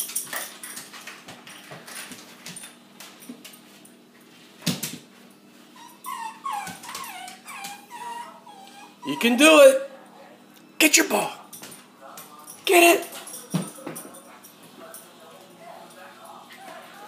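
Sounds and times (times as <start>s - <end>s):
dog whining: 5.7s - 9.7s.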